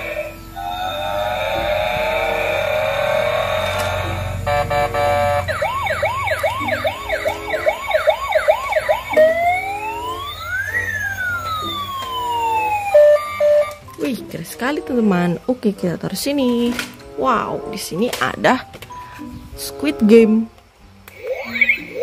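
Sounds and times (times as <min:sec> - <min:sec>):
steady electronic tones: 0:00.0 - 0:13.8
electronic siren warbling and wailing: 0:00.8 - 0:13.8, 0:21.1 - 0:22.0.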